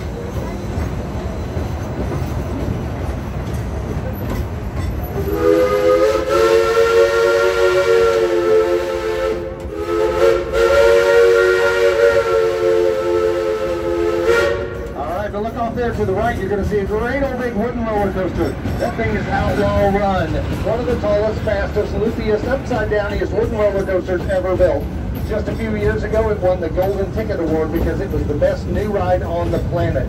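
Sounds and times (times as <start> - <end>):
steam train rumbling: 0.0 - 30.0
steam whistle blasts: 5.2 - 14.9.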